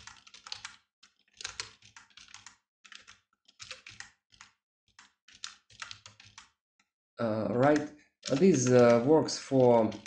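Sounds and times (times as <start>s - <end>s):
computer keyboard typing: 0.0s - 6.6s, 7.2s - 10.0s.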